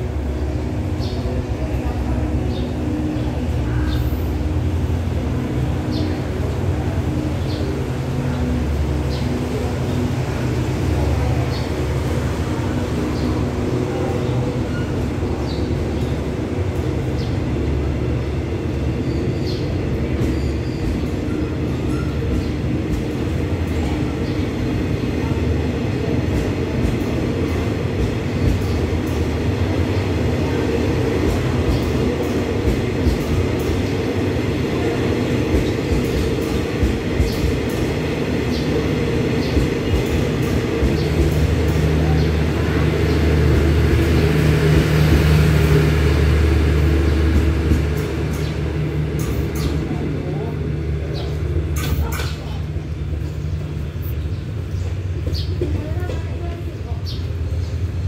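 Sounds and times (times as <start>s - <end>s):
train coaches rumbling past: 0.0s - 58.0s.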